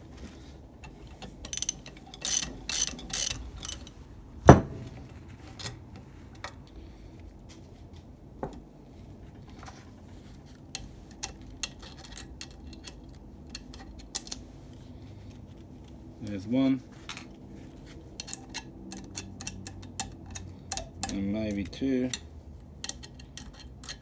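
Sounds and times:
metal tools clinking: 0:00.8 - 0:04.0
hand ratchet clicking: 0:01.2 - 0:04.0, 0:18.2 - 0:24.0.

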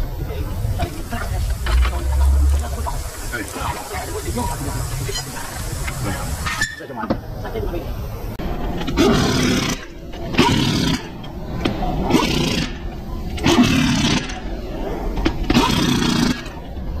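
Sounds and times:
pneumatic impact wrench bursts: 0:13.4 - 0:14.4.

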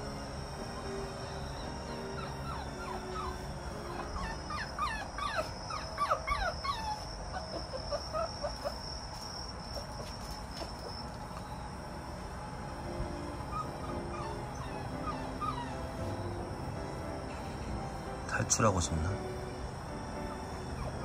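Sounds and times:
puppy whimpering: 0:00.8 - 0:08.8, 0:13.5 - 0:16.3, 0:20.6 - 0:21.0.

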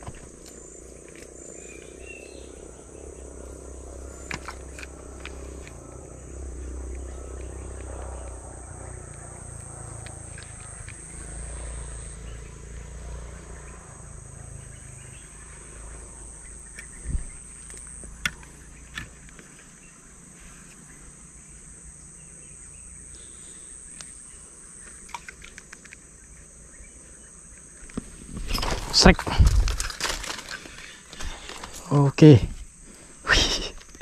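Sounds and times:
high-pitched insect drone: 0:00.0 - 0:32.4, 0:33.0 - 0:34.0.

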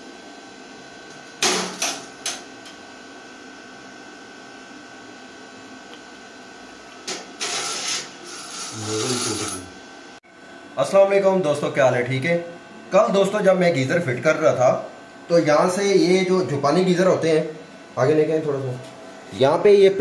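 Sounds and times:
tools rasping on metal pipe: 0:07.4 - 0:09.7.

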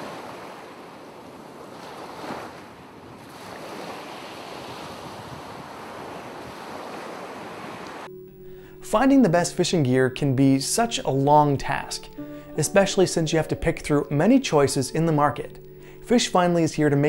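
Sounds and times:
ocean surf: 0:00.0 - 0:08.1
wind: 0:00.0 - 0:08.1.

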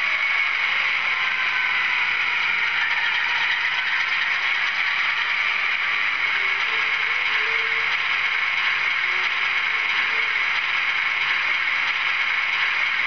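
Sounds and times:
diesel engine idling through small speaker: 0:03.8 - 0:13.0.

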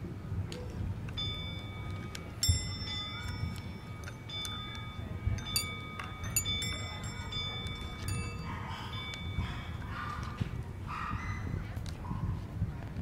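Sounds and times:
metal wind chime tinkling: 0:01.1 - 0:10.7.

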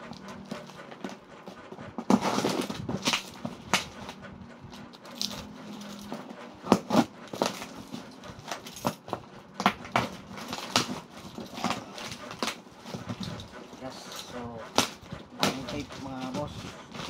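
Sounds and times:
scissors cutting packing tape: 0:02.1 - 0:04.0, 0:08.5 - 0:13.3.

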